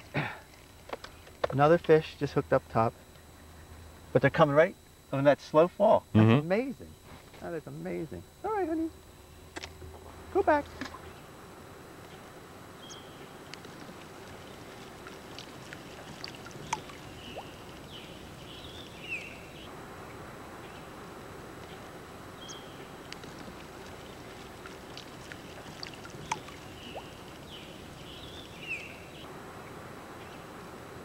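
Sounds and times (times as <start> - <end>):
short bird-like chirps: 12.8 - 13.3
water hissing: 13.5 - 19.6, 22.9 - 29.2.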